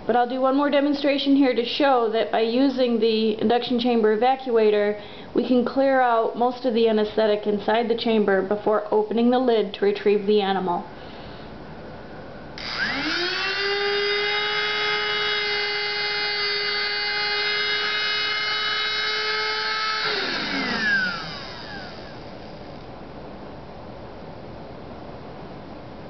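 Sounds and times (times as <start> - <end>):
small motor whining: 12.6 - 22.9.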